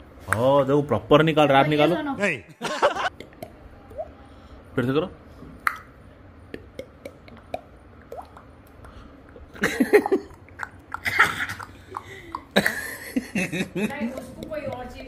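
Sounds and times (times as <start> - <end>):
child making mouth sound effects: 6.5 - 8.5, 13.9 - 15.0.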